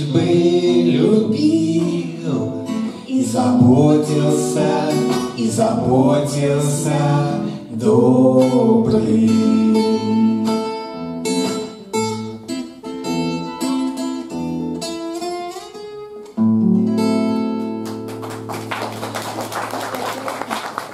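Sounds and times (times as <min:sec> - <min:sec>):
acoustic guitar playing: 0:00.0 - 0:19.1
applause: 0:17.8 - 0:20.9.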